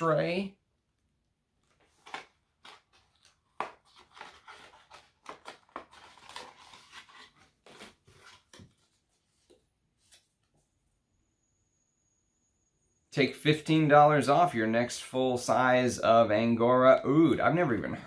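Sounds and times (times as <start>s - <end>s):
packaging rustling and clicking: 1.6s - 8.9s.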